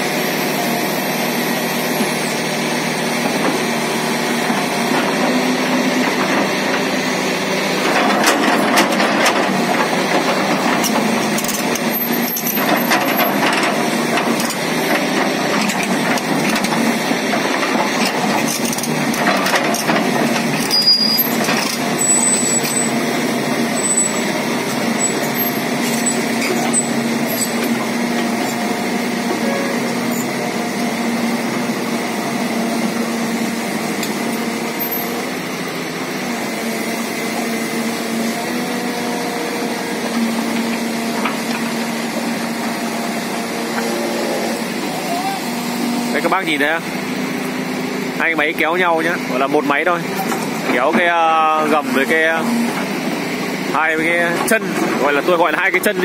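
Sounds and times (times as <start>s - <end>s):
excavator engine running: 0.0s - 56.0s
metal tracks scraping over gravel: 23.6s - 30.5s.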